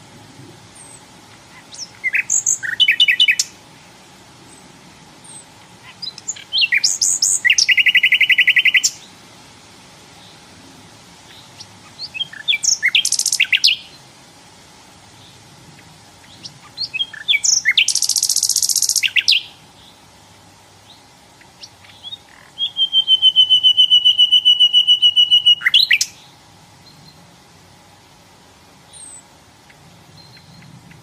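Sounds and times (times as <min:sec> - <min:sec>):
nightingale singing: 0:00.7 - 0:03.7, 0:04.5 - 0:09.2, 0:11.2 - 0:14.2, 0:15.1 - 0:20.1, 0:20.7 - 0:27.3, 0:28.8 - 0:31.0.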